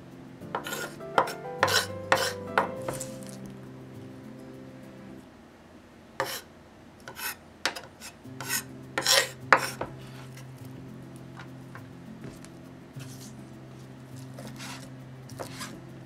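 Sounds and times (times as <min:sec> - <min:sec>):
knife scraping a cutting board: 0:00.6 - 0:03.2, 0:06.2 - 0:06.5, 0:07.1 - 0:10.4, 0:14.2 - 0:15.8.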